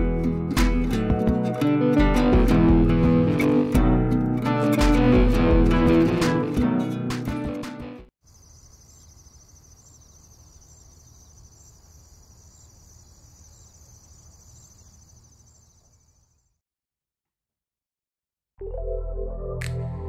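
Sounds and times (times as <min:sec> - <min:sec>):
acoustic guitar music: 0:00.0 - 0:08.1
insects chirring: 0:08.2 - 0:16.5.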